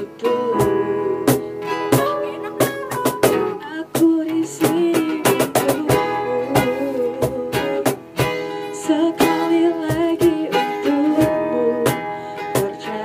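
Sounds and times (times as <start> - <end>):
keyboard playing: 0.0 - 4.0
cajon beat: 0.0 - 13.0
guitars strumming: 0.0 - 13.0.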